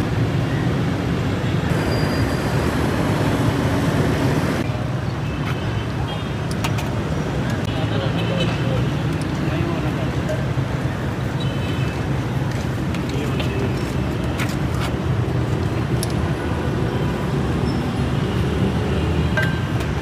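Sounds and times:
road traffic hum: 0.0s - 20.0s.

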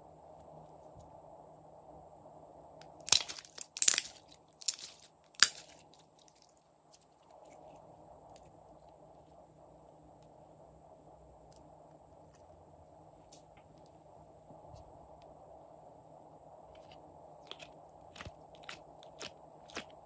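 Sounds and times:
slime crackling and popping: 2.8s - 7.7s, 17.4s - 20.0s.

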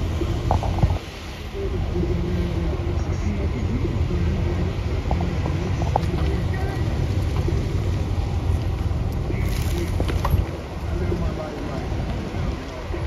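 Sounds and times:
street traffic rumble: 0.0s - 13.0s
wind buffeting microphone: 0.0s - 13.0s.

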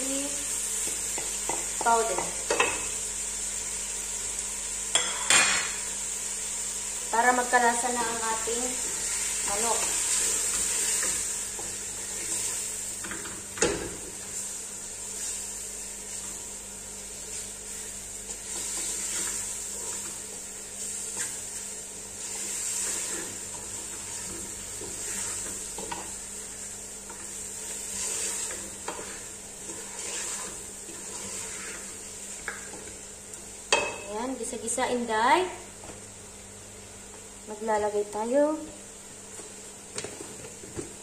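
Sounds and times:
chicken sizzling in oil: 0.0s - 35.4s
wooden spoon scraping a pot: 17.3s - 20.2s, 22.2s - 26.1s, 27.1s - 33.0s.

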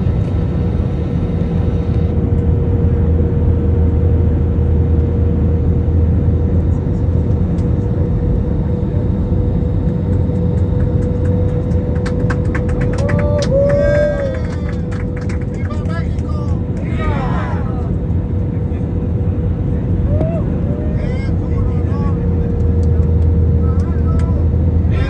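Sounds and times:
airplane cabin rumble: 0.0s - 25.0s
constant mid-pitched whine: 0.0s - 25.0s.

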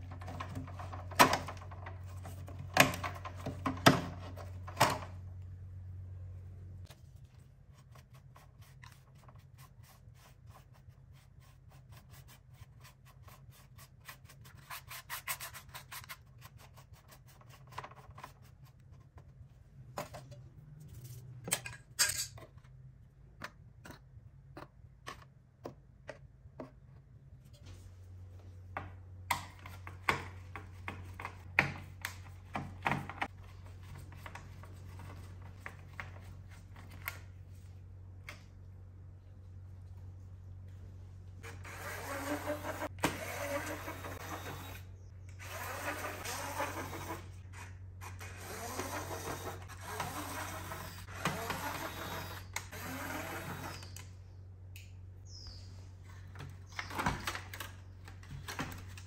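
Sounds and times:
brush scrubbing: 6.9s - 19.2s.

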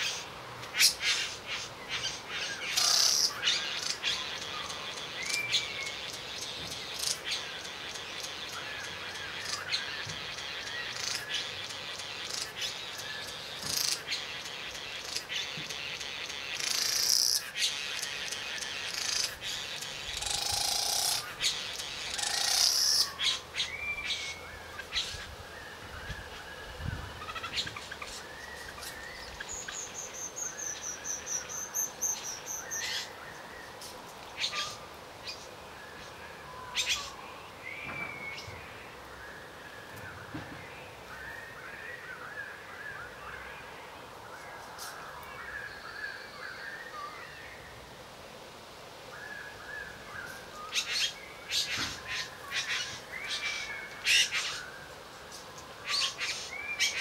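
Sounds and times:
bird buzzing and churring calls: 0.0s - 25.4s, 26.6s - 33.2s, 50.2s - 57.0s.

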